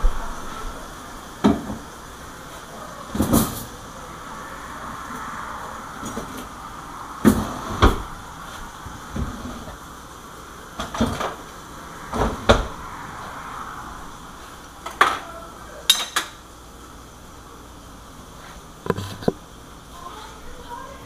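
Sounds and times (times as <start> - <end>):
dishes and cutlery clinking: 15.9 - 16.4.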